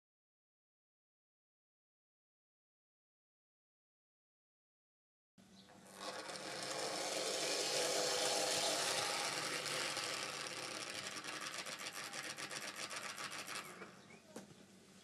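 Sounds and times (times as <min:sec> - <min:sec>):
model tram motor whirring: 0:05.7 - 0:14.2
rapid ticking: 0:05.9 - 0:13.9.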